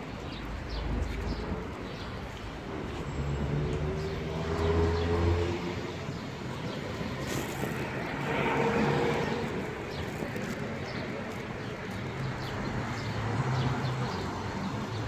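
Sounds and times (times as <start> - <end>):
vehicle passing: 3.2 - 6.0, 7.1 - 10.5.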